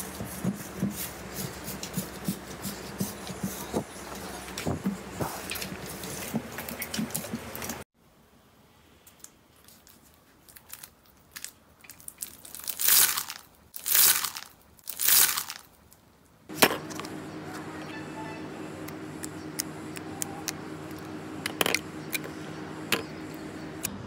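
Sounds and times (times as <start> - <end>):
slime crunchy crackle: 9.7 - 15.7.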